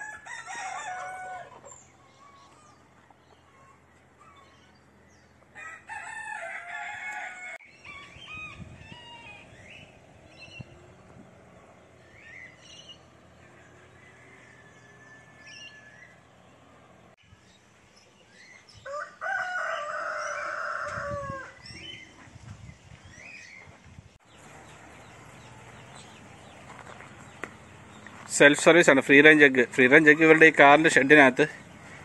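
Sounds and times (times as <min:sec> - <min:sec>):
rooster crowing: 0:00.0 - 0:02.8, 0:05.5 - 0:09.8, 0:13.4 - 0:16.3, 0:18.8 - 0:21.7.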